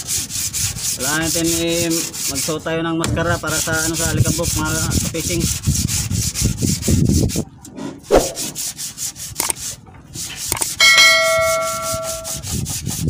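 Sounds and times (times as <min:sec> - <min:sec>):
rhythmic scratchy rubbing: 0:10.4 - 0:13.0
bright bell-like chime: 0:10.8 - 0:12.3.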